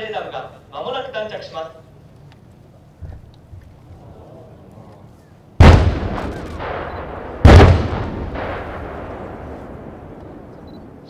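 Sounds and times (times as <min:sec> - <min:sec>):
heavy explosions with rolling echo: 0:05.6 - 0:11.0.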